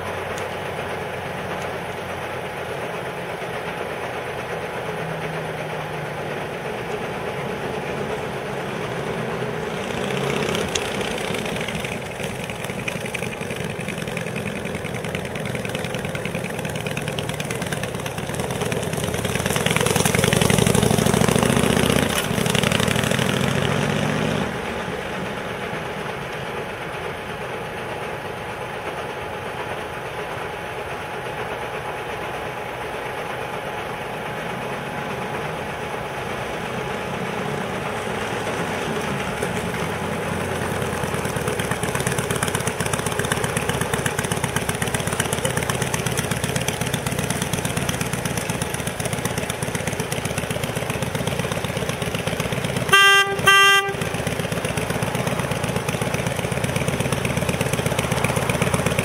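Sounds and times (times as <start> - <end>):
motorcycle engine accelerating: 4.7 - 26.8, 34.3 - 59.0.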